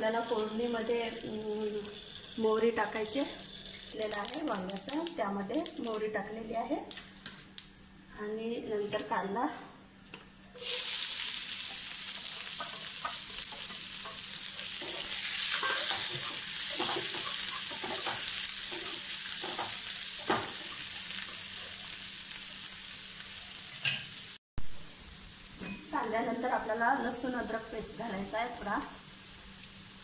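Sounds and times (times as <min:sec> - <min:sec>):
onion sizzling in hot oil: 0:00.0 - 0:06.1, 0:10.5 - 0:30.0
spatula scraping and tapping pan: 0:11.7 - 0:21.7.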